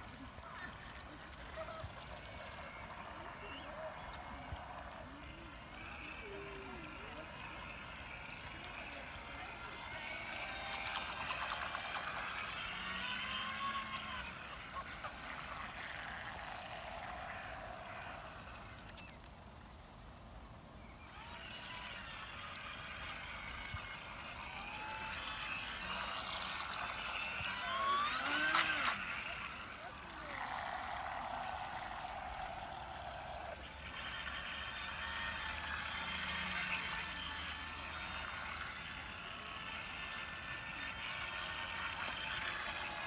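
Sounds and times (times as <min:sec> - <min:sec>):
model boat motor whining: 0:00.0 - 0:43.0.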